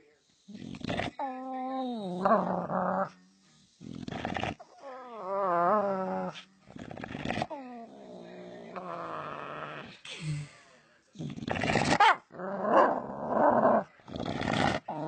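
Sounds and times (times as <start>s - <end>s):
dog moaning: 0.5s - 3.2s, 3.9s - 9.9s.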